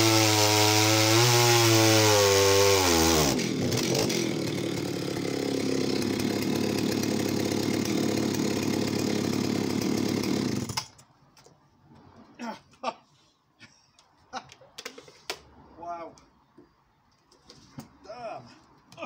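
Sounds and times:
chainsaw idling: 0.0 - 10.9.

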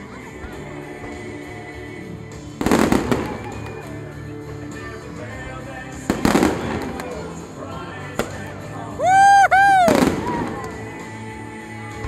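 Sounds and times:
background music: 0.0 - 12.0
fireworks bangs and crackles: 2.4 - 4.8, 5.9 - 7.4, 9.8 - 10.9.

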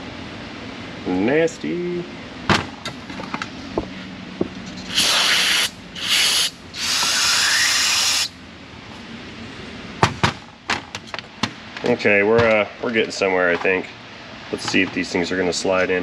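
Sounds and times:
aerosol spray can hissing: 4.9 - 8.3.

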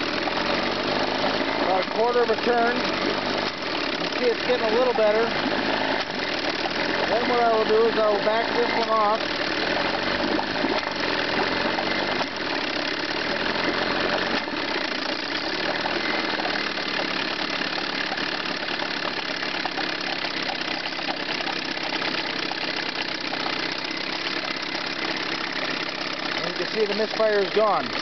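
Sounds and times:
outboard motor idling: 0.0 - 28.0.

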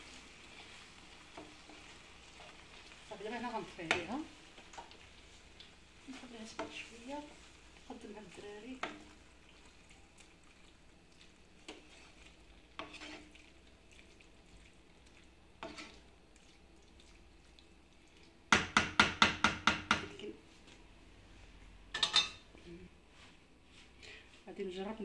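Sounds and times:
wooden spatula scraping pan: 11.6 - 13.5, 15.6 - 16.0.

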